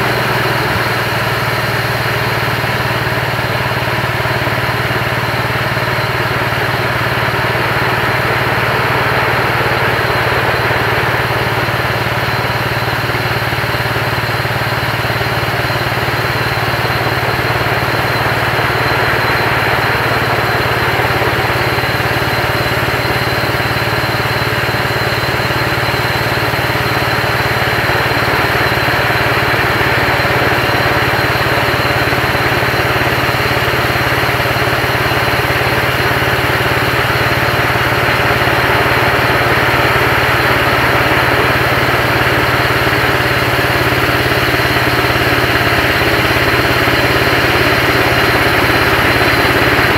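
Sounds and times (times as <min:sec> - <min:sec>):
sawmill engine running under load: 0:00.0 - 0:49.9.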